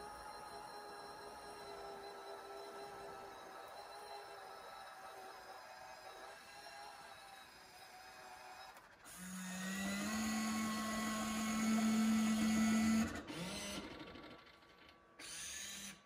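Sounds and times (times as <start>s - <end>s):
electric motor whirring: 15.2s - 16.0s.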